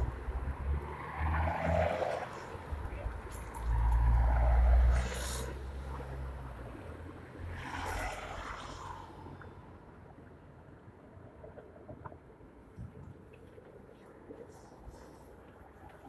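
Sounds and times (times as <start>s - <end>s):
vehicle swishing past: 0.0s - 6.7s, 7.4s - 9.3s
vehicle rumbling past: 0.0s - 9.3s.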